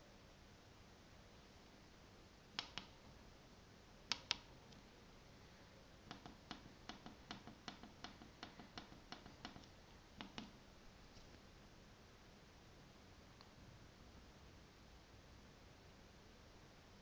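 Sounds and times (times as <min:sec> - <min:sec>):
fingertip clicks on a keypad: 0:02.6 - 0:03.0, 0:04.1 - 0:04.5, 0:06.1 - 0:10.6.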